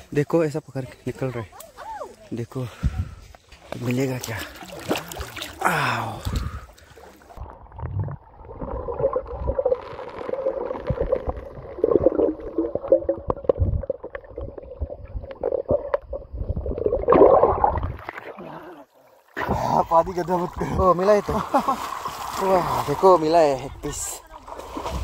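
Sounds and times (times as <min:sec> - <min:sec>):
gurgling water underwater: 0:04.5 - 0:19.9.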